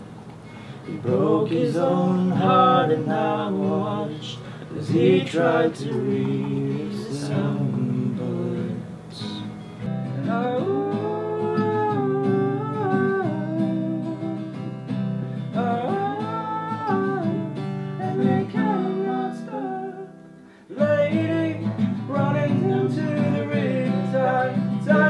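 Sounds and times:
acoustic guitar playing: 0:00.0 - 0:25.0
man singing: 0:00.9 - 0:14.8, 0:15.5 - 0:20.1, 0:20.7 - 0:25.0.

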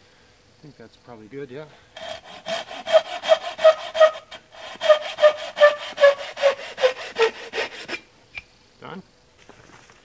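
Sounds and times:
handsaw cutting wood: 0:02.0 - 0:08.1.

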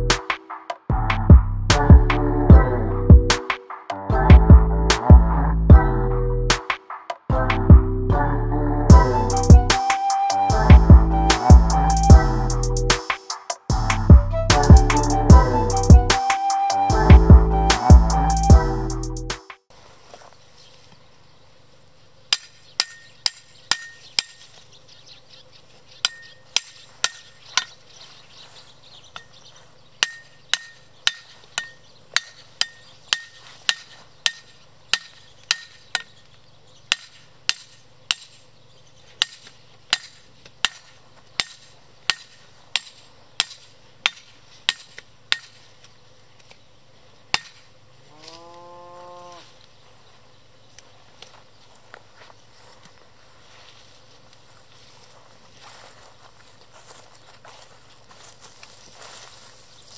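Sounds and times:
hammer clanking on steel stake: 0:22.3 - 0:24.5, 0:26.0 - 0:27.7, 0:30.0 - 0:36.2, 0:36.9 - 0:38.4, 0:39.2 - 0:45.7, 0:47.3 - 0:47.7
cow mooing: 0:48.0 - 0:49.5.

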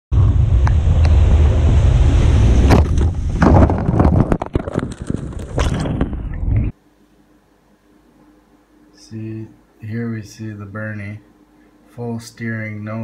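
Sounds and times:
wind rumble on microphone: 0:00.1 - 0:06.7
branches cracking and snapping: 0:02.7 - 0:06.5.

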